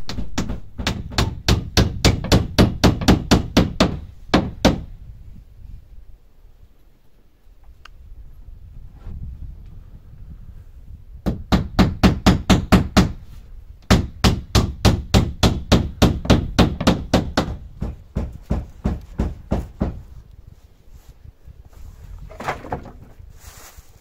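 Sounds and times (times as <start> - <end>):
hammer striking nails into wood: 0.0 - 4.9, 11.2 - 13.2, 13.8 - 20.0.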